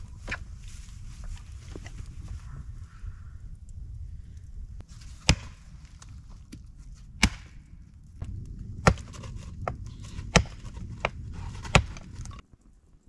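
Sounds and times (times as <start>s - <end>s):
axe chopping wood: 5.2s - 5.6s, 7.2s - 7.6s, 8.8s - 12.3s.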